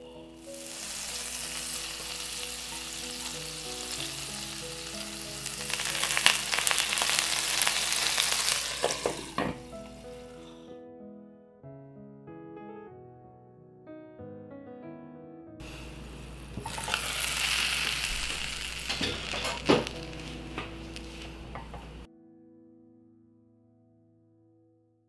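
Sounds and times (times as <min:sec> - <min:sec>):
water sizzling in a frying pan: 0:00.3 - 0:10.4, 0:15.6 - 0:22.1.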